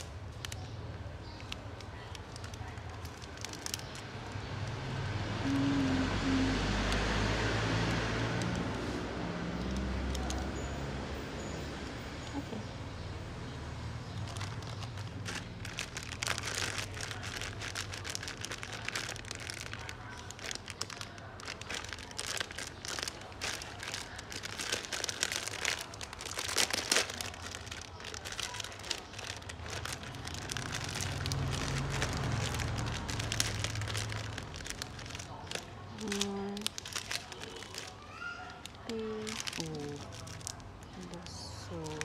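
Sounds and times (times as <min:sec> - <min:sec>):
plastic packets crinkling: 0:00.0 - 0:04.8, 0:05.5 - 0:10.7, 0:14.0 - 0:42.0.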